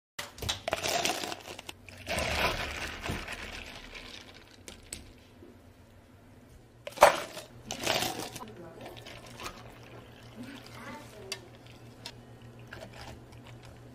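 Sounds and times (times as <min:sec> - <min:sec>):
ice cubes clattering into cup: 0:00.6 - 0:05.0, 0:06.9 - 0:10.7.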